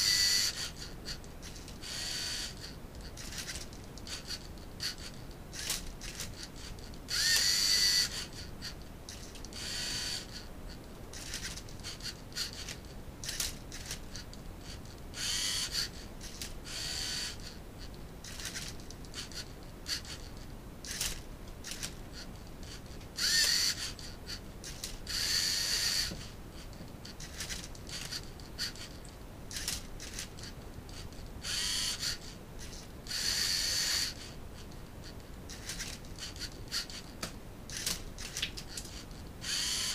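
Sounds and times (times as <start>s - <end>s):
servo motors whirring: 0.0s - 10.5s, 11.2s - 14.2s, 15.1s - 17.6s, 18.2s - 20.3s, 20.9s - 26.3s, 29.5s - 30.5s, 31.4s - 34.7s, 35.5s - 37.1s, 37.7s - 39.9s.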